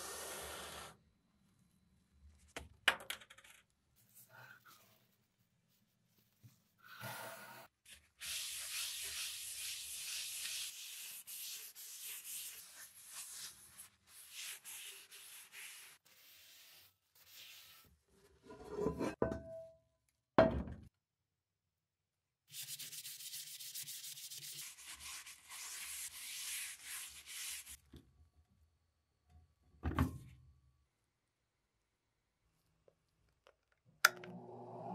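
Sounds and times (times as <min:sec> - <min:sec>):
paper towel rubbing grill pan: 0:08.2 - 0:17.9.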